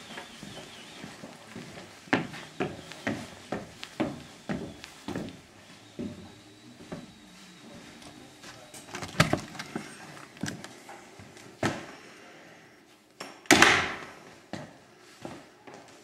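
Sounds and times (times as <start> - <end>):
footsteps knocking on wood: 0.1 - 5.4
door opening: 8.7 - 10.8
door banging shut: 9.0 - 9.6.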